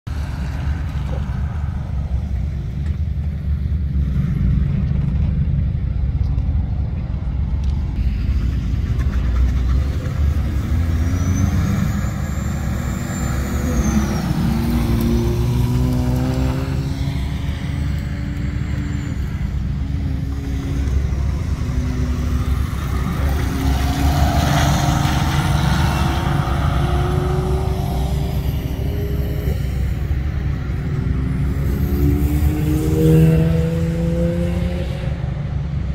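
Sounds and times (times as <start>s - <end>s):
heavy low rumble: 0.1s - 11.1s
car engines revving: 0.1s - 35.9s.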